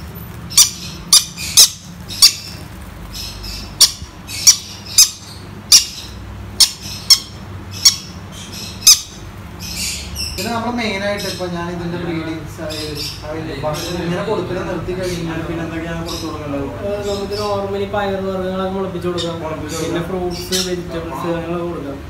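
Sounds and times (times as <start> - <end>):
parrot chick squawking: 0.0 - 11.6.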